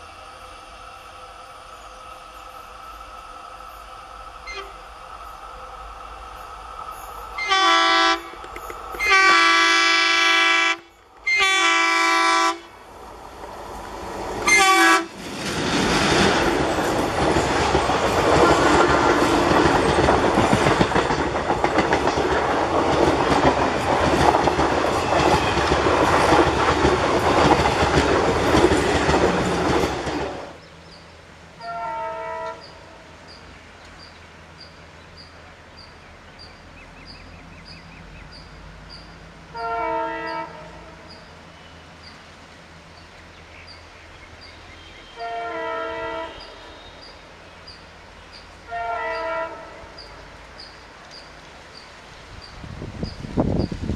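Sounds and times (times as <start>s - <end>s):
passenger train rushing past: 0.0s - 53.9s
distant locomotive horn blasts: 4.4s - 4.9s, 7.4s - 12.8s, 14.4s - 15.2s, 31.6s - 33.0s, 39.5s - 41.2s, 44.8s - 47.1s, 48.6s - 50.2s.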